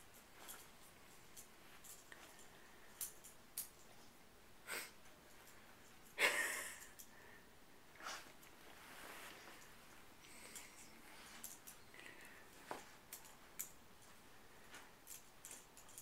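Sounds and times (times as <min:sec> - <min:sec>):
dog rustling bed covers: 0:08.0 - 0:10.2.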